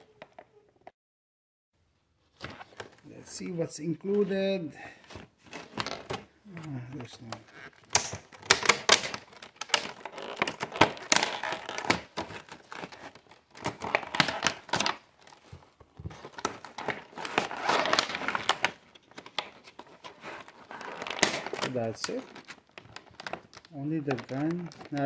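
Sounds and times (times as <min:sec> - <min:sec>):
plastic packaging crinkling: 0:05.5 - 0:25.0.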